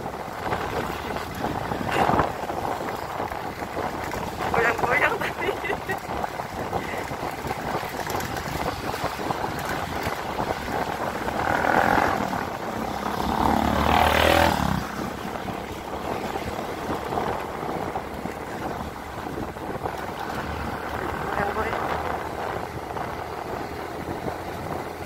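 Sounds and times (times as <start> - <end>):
motorcycle engine running: 0.0 - 25.0
wind rushing over microphone: 0.0 - 25.0
motor cart engine passing: 0.4 - 25.0.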